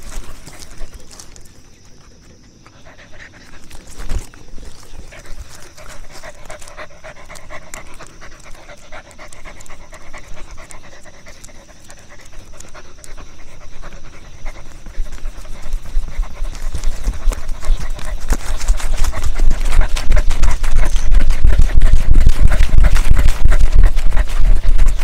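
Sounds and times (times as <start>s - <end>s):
dog panting: 0.0s - 25.0s.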